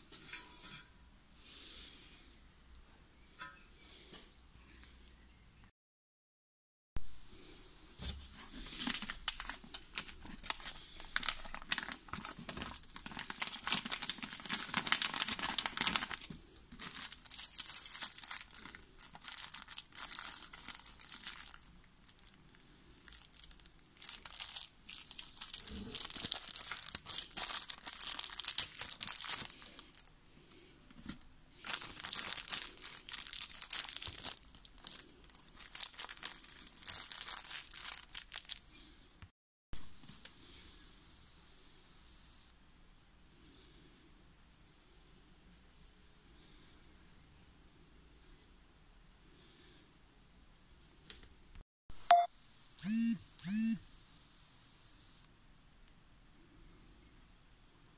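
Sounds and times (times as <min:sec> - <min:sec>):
plastic bag crinkling: 0:08.4 - 0:30.1, 0:31.0 - 0:38.7.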